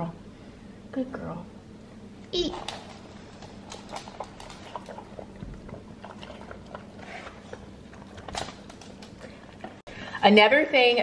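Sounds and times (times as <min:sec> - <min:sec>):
dog chewing wet food: 0:02.6 - 0:09.9.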